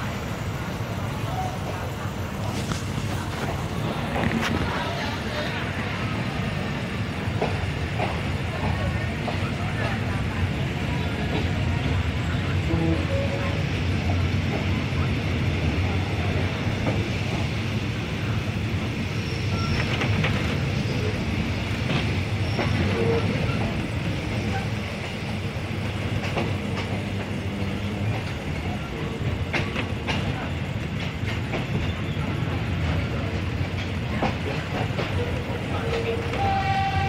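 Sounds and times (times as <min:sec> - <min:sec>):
train low rumble: 0:00.0 - 0:37.0
wheels clacking over rail joints: 0:26.0 - 0:37.0.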